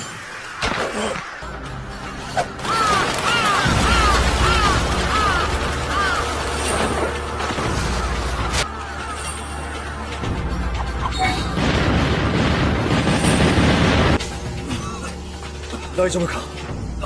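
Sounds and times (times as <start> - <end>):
crows cawing: 2.6 - 7.0.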